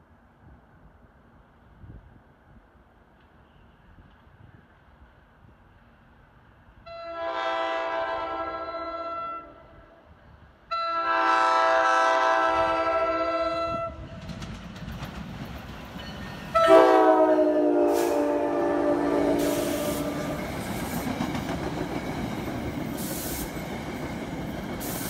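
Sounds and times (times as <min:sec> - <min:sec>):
train rumbling on rails: 0:00.0 - 0:25.0
train air horn blasts: 0:06.8 - 0:10.0, 0:10.7 - 0:14.1, 0:16.5 - 0:20.4.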